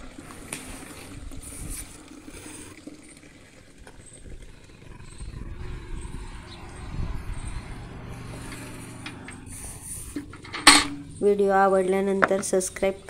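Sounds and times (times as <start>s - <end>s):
milk pouring into cans: 0.0s - 5.2s
cow lowing: 3.9s - 11.5s.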